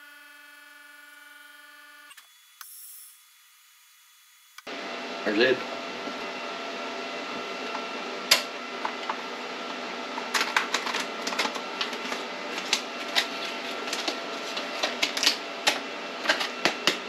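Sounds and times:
steady background hum: 4.7 - 17.0
plastic bag crinkling: 10.3 - 16.9.

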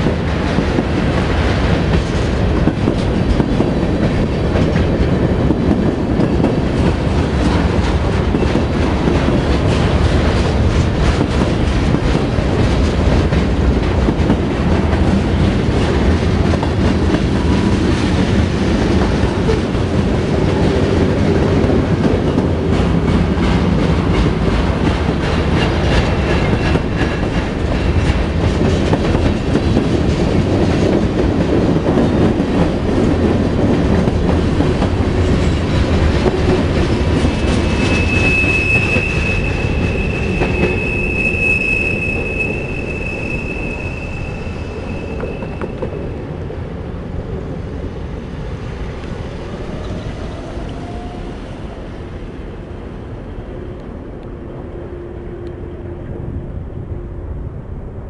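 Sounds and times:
wheels clacking over rail joints: 0.0 - 41.4
high wheel squeal: 37.3 - 45.9.

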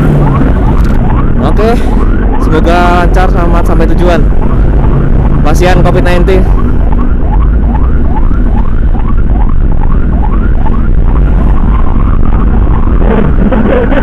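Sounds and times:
motorcycle engine rumble: 0.0 - 2.4, 6.4 - 14.0
emergency siren yelping: 0.0 - 14.0
heavy wind: 0.0 - 14.0.

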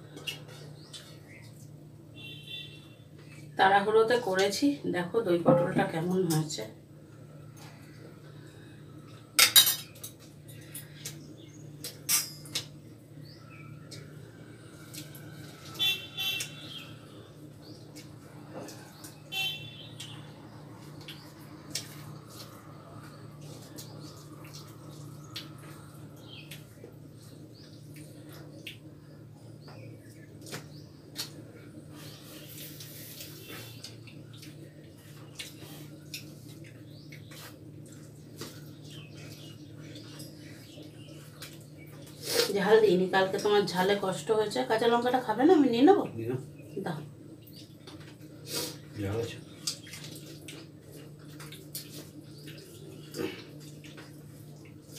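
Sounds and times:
steady low hum: 0.0 - 54.9
fingers mixing rice on plates: 30.4 - 42.5.

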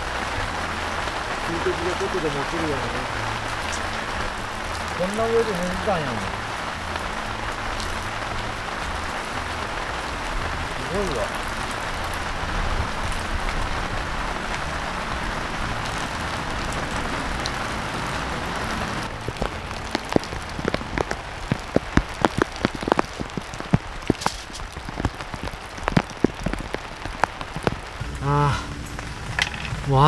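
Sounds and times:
heavy rain hissing: 0.0 - 30.0
heavy drops dripping on a surface: 19.0 - 29.8.

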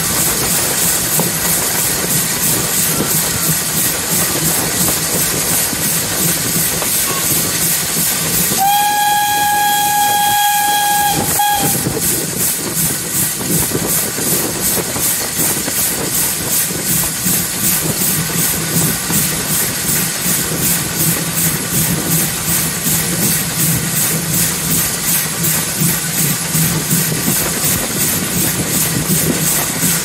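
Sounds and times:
rhythmic train running noise: 0.0 - 30.0
steam locomotive whistle: 8.5 - 12.2.

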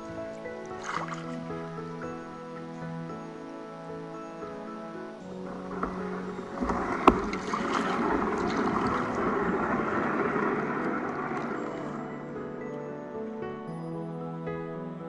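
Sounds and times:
rough water rushing: 0.0 - 2.4, 4.4 - 12.7
canoe scraping over log: 0.8 - 1.4, 5.4 - 12.4
canoe hull knocking: 5.5 - 11.6.

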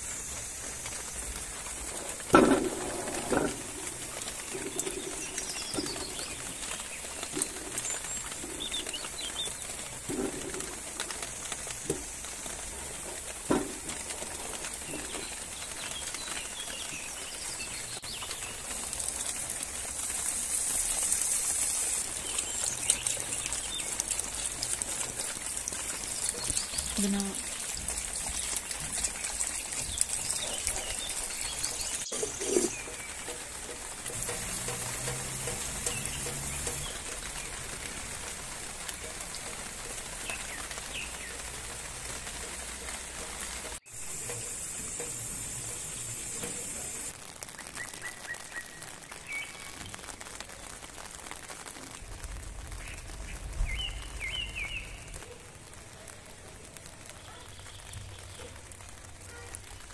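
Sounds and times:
rain falling: 0.0 - 59.9
bird chirps: 4.2 - 9.8, 34.1 - 37.6.

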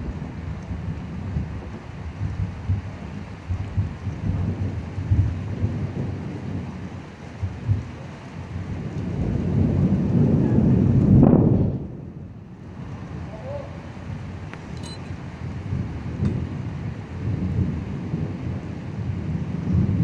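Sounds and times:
steady rain: 0.0 - 20.0
thunder rumbling: 0.0 - 20.0.

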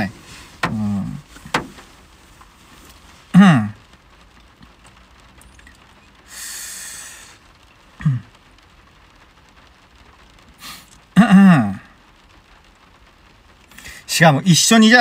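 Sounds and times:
short falling grunt: 3.3 - 3.8
man breathing out heavily: 6.3 - 7.4.

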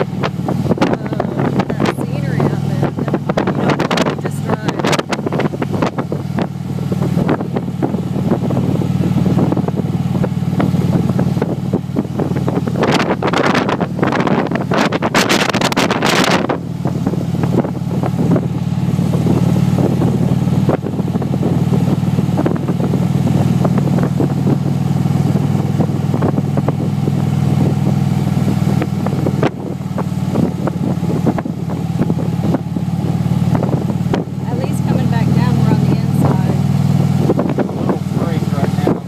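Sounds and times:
motorcycle engine running: 0.0 - 39.0
wind buffeting microphone: 0.0 - 39.0.

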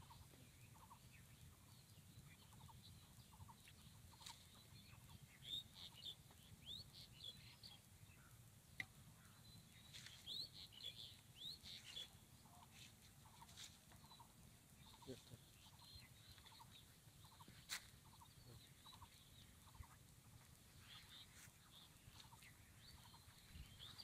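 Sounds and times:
faint bird chirps: 0.0 - 24.0.

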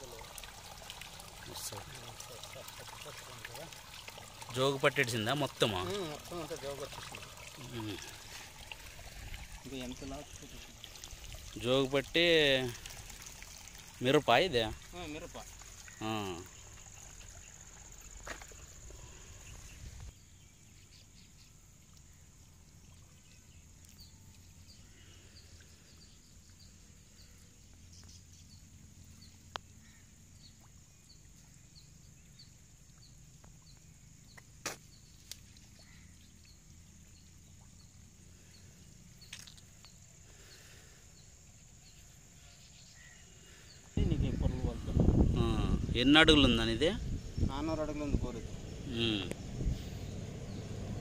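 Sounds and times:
small chirp: 15.4 - 44.0.

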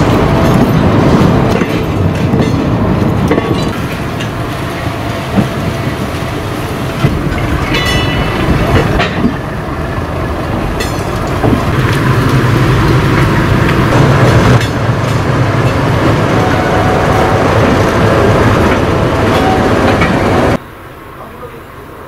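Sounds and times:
train clanks: 0.0 - 20.6
train engine and rail rumble: 0.0 - 22.0.

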